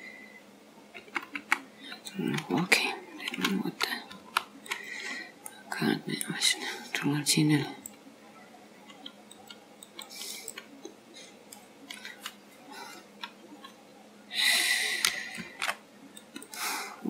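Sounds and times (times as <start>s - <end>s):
computer mouse clicks: 0.9s - 2.6s, 3.2s - 5.6s, 8.9s - 13.8s, 15.0s - 16.6s.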